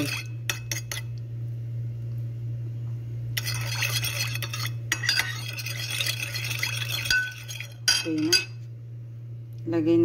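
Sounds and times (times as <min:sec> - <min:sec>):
metal spoon clinking in bowl: 0:00.0 - 0:01.1, 0:03.4 - 0:08.6
steady low hum: 0:00.0 - 0:10.0
liquid swishing: 0:03.4 - 0:07.8.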